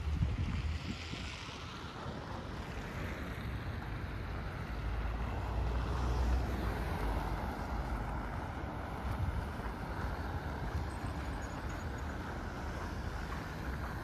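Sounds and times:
wind buffeting microphone: 0.0 - 2.6
road traffic: 0.0 - 14.0.

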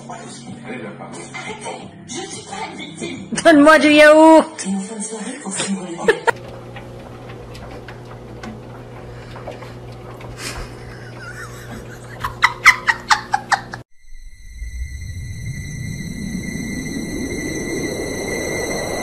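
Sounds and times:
steady low hum: 6.3 - 19.0
bursts of laughter: 10.4 - 13.8
eerie music with low rumble: 14.0 - 19.0.

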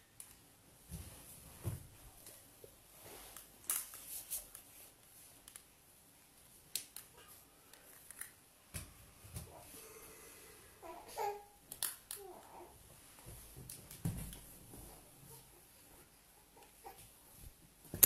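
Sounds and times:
soft clicks and rustles: 0.2 - 5.8.

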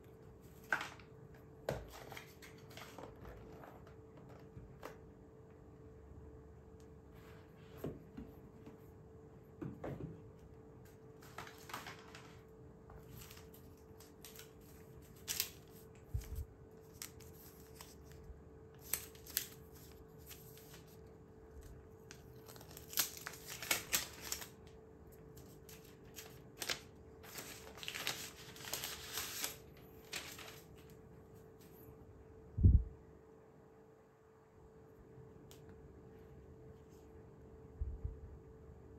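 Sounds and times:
faint steady hum: 0.0 - 38.9
packaging rustling: 11.2 - 21.0, 21.7 - 31.0.

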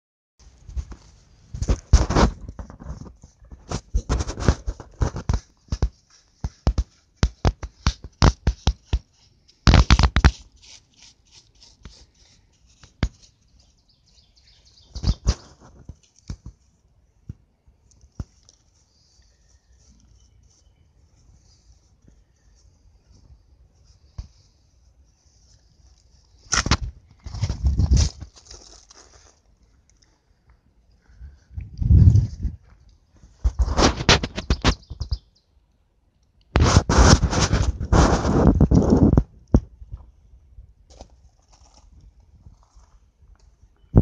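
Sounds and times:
brush bristles scratching rock: 0.9 - 16.7, 23.8 - 29.5, 33.4 - 35.2, 36.6 - 39.2, 40.9 - 43.0.

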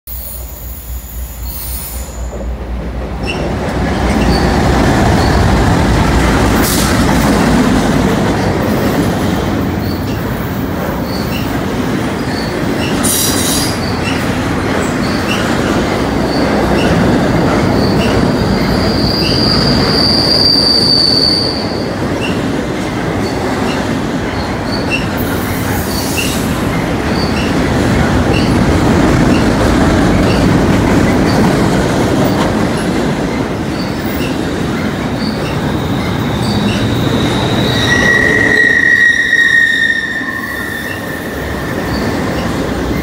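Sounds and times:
train wheels rumbling on rail: 0.1 - 43.0
wheel squeal: 4.1 - 5.5, 11.0 - 11.6, 16.2 - 17.0, 17.8 - 22.4, 35.2 - 42.6.

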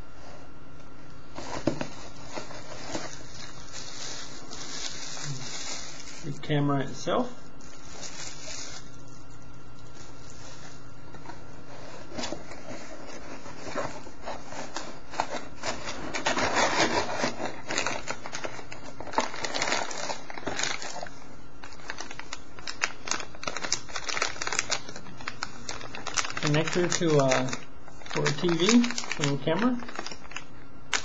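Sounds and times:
plastic bags crinkling: 1.4 - 11.0, 15.6 - 31.0.

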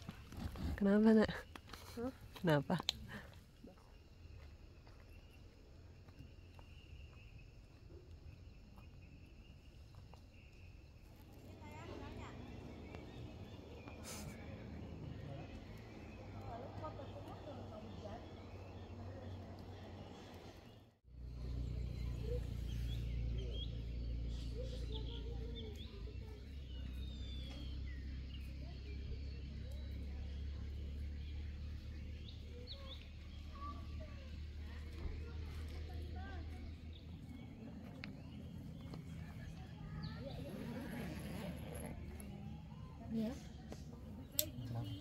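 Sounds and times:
birds chirping: 0.0 - 45.0
insects chirring: 0.1 - 19.0.

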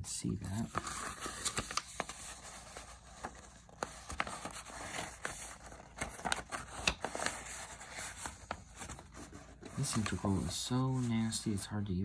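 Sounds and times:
paper rustling: 0.4 - 11.6.

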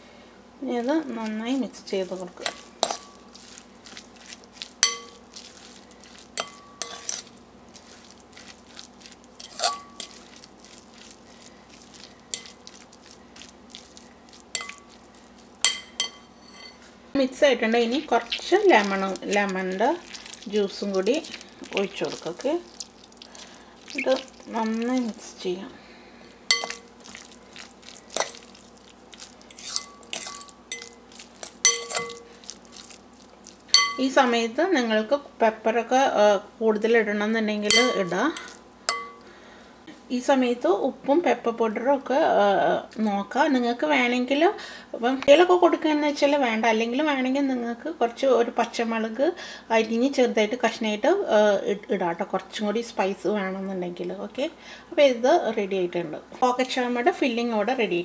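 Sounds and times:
spoon scraping thick filling: 1.1 - 16.9, 17.8 - 25.5, 26.2 - 34.1, 37.7 - 39.2
spoon clinking on glass bowl: 2.4 - 3.6, 4.8 - 7.3, 9.4 - 10.3, 12.3 - 12.8, 14.5 - 16.8, 26.5 - 27.4, 28.1 - 28.6, 29.5 - 32.4, 33.7 - 34.2, 37.7 - 39.2.

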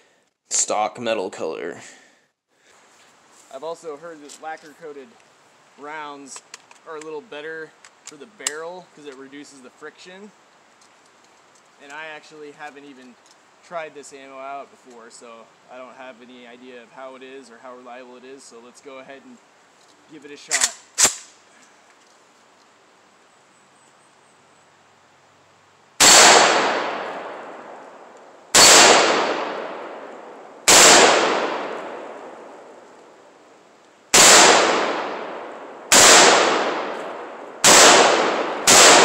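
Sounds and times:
rifle shots with echo: 26.0 - 27.8, 28.5 - 32.5, 34.1 - 39.0.

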